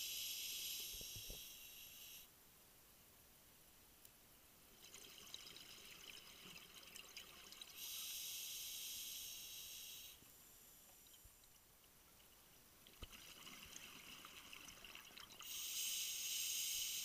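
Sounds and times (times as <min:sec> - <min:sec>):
regulator inhalation hiss: 0:00.0 - 0:02.3, 0:07.8 - 0:10.8, 0:15.4 - 0:17.0.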